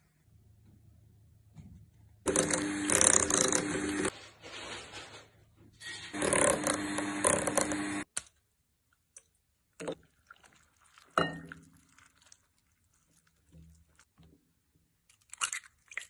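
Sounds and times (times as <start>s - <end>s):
electric hand mixer beating: 2.3s - 4.1s, 6.1s - 8.1s
kitchenware clink: 11.2s - 11.6s.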